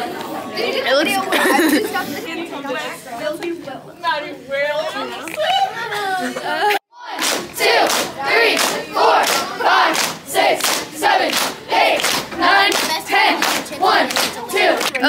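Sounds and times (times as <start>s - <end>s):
group shouting in unison: 7.0s - 14.8s.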